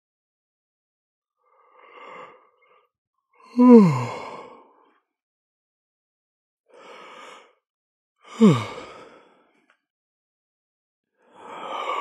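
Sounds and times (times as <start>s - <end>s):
person yawning: 3.5s - 4.3s, 8.4s - 8.8s.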